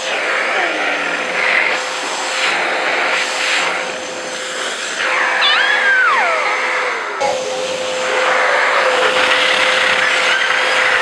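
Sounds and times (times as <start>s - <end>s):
vacuum cleaner whine: 0.0s - 11.0s
toddler squealing: 5.2s - 9.4s.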